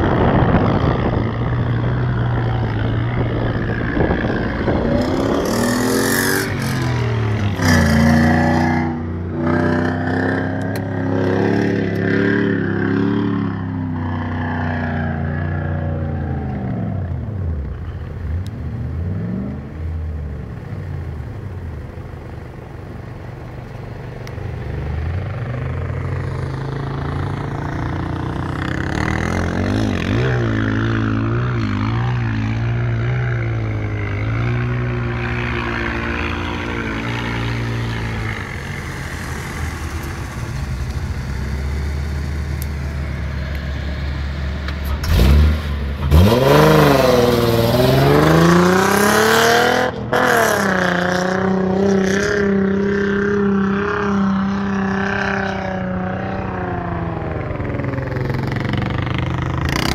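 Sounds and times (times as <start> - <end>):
off-road engines revving: 0.0 - 59.9
engine revving hard close by: 44.8 - 59.9.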